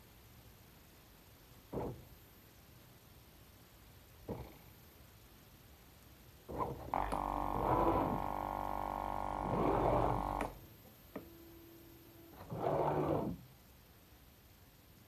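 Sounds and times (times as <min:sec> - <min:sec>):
motor buzz with low hum: 0:06.5 - 0:13.5
short steady whine: 0:06.9 - 0:13.4.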